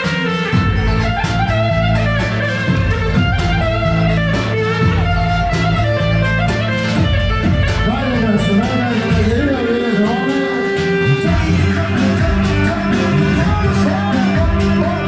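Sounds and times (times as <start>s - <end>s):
low bass notes: 0.0s - 10.4s, 11.0s - 15.0s
plucked string instrument melody: 0.0s - 15.0s.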